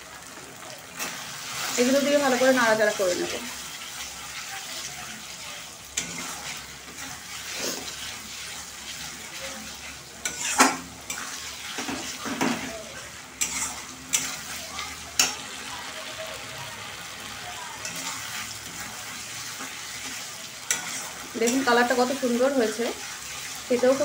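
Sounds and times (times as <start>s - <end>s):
paste sizzling in oil: 0.0s - 24.0s
metal spatula scraping a wok: 1.0s - 15.5s, 17.8s - 24.0s.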